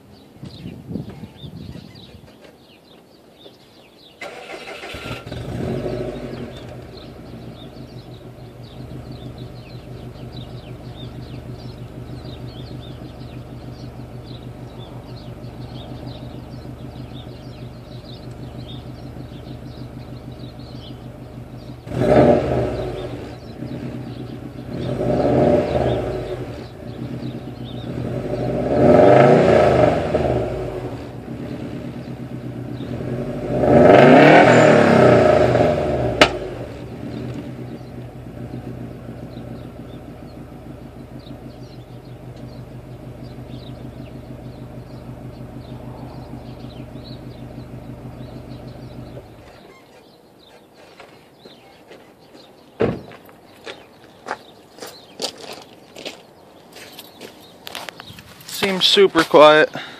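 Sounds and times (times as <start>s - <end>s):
car engine starting: 4.1s - 50.2s
car engine revving: 4.2s - 49.6s
car engine idling: 4.2s - 50.4s, 57.5s - 59.9s.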